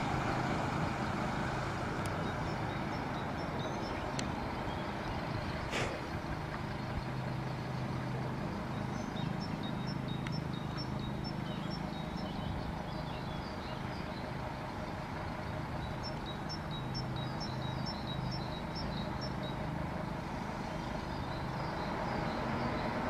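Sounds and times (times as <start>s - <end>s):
diesel railcar engine hum: 0.0s - 23.0s
air hiss: 5.7s - 6.1s.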